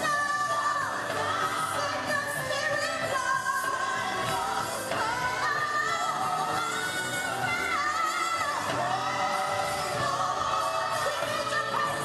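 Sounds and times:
gospel song: 0.0s - 12.0s.

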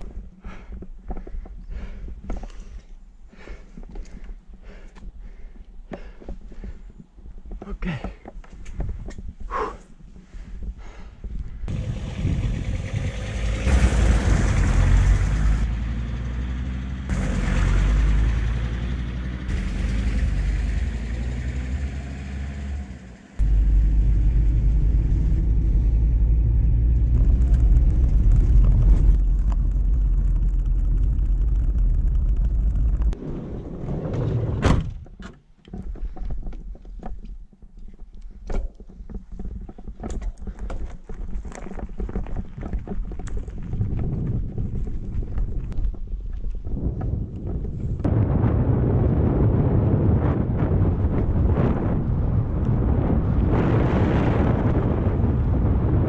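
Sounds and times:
van engine and road noise: 11.7s - 33.7s
clicking and crunching: 35.3s - 47.9s.

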